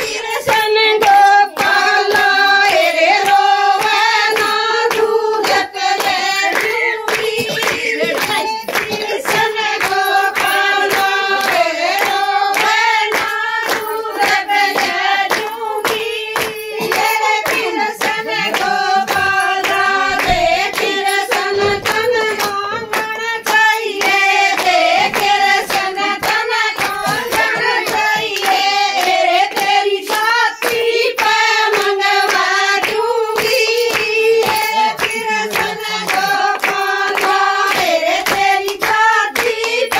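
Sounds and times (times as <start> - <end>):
hand-clapping: 0.0 - 39.9
women singing folk song: 0.0 - 39.9.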